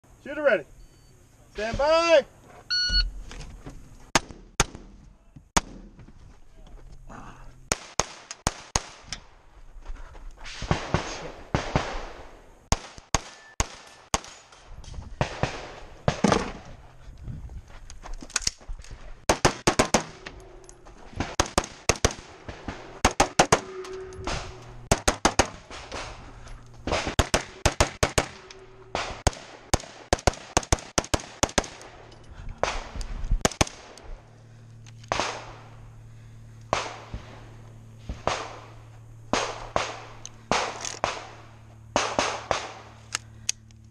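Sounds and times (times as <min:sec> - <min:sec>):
pistol gunshots: 0:07.7 - 0:09.1, 0:10.6 - 0:14.5, 0:15.2 - 0:16.6, 0:19.3 - 0:20.3, 0:21.2 - 0:26.2, 0:26.8 - 0:32.0, 0:35.1 - 0:35.8, 0:36.7 - 0:37.4, 0:38.1 - 0:43.0
rifle gunshots: 0:07.7 - 0:09.1, 0:10.6 - 0:14.5, 0:15.2 - 0:16.6, 0:19.3 - 0:20.3, 0:21.2 - 0:26.2, 0:26.9 - 0:32.0, 0:35.1 - 0:35.8, 0:36.7 - 0:43.0.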